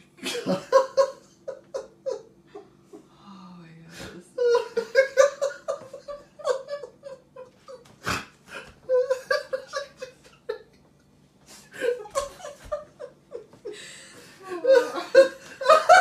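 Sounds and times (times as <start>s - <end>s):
person laughing: 4.4s - 7.9s, 8.5s - 10.8s, 11.6s - 16.0s.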